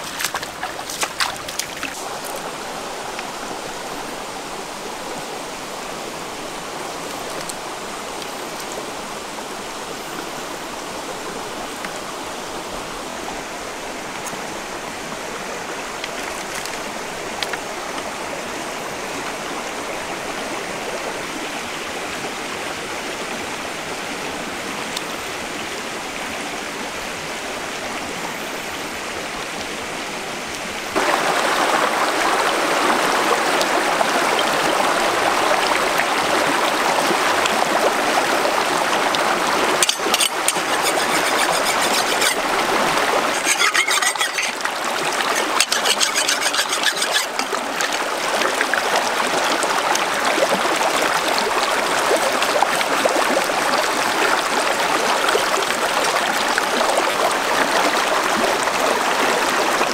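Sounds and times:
knife scraping fish scales: 0.0s - 2.4s, 39.8s - 42.5s, 43.2s - 48.0s
stream rushing over rocks: 0.0s - 59.9s.

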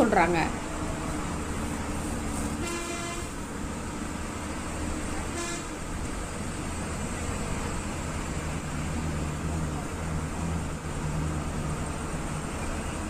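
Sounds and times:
bus engine and road noise: 0.0s - 13.0s
vehicle horn honking: 2.6s - 3.4s, 5.3s - 5.8s.

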